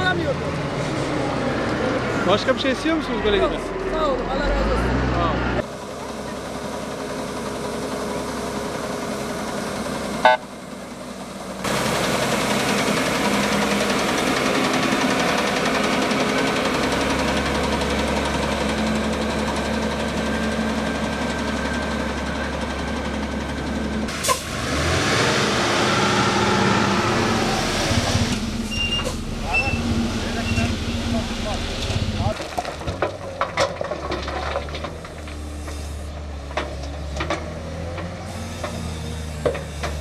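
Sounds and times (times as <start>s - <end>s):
heavy road machinery running: 0.0s - 40.0s
truck diesel engine running: 0.0s - 40.0s.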